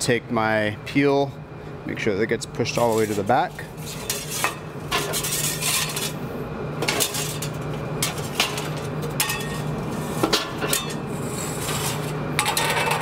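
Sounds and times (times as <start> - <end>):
metal peel scraping and clanking: 2.8 - 6.2, 6.8 - 13.0.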